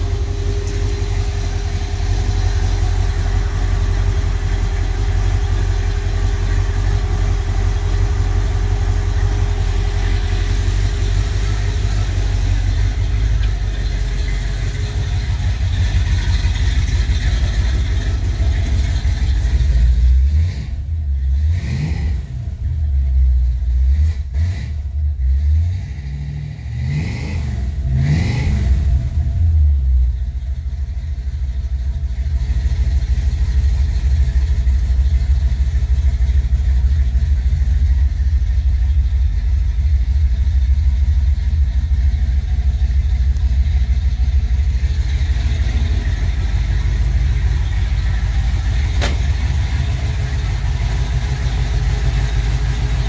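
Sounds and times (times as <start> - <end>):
car engine revving and idling: 0.0 - 53.0
sharp click: 49.0 - 49.4.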